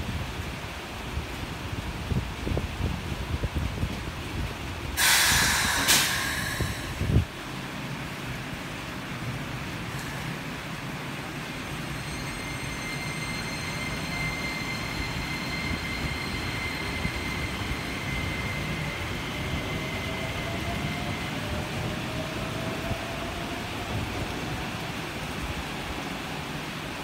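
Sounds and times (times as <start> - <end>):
steady rain hiss: 0.0 - 12.3, 20.6 - 27.0
train electrical whine: 5.0 - 7.4, 9.9 - 26.8.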